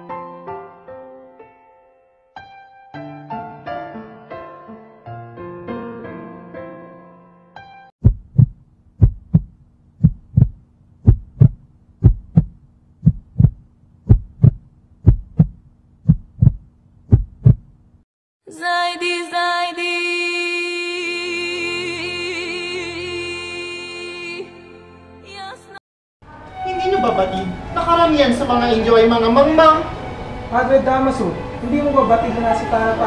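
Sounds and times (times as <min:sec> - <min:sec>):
heartbeat double thumps: 0:08.0 - 0:17.8
music with long held tones: 0:26.3 - 0:33.0.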